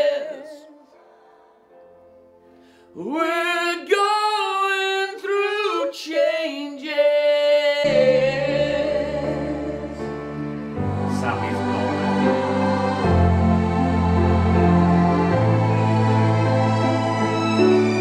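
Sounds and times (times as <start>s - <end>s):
man singing ballad: 0.0s - 1.0s, 2.9s - 9.4s
instrumental backing: 7.9s - 18.0s.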